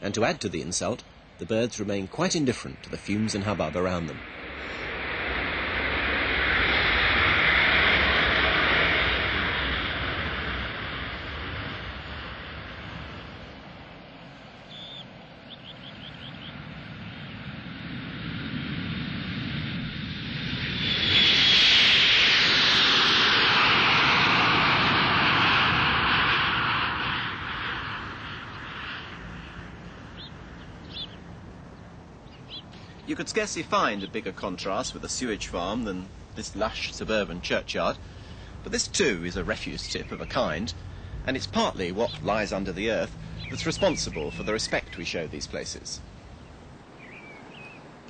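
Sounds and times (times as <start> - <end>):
jet airliner roar: 0.0 - 48.0
jet engine high whine: 0.0 - 48.0.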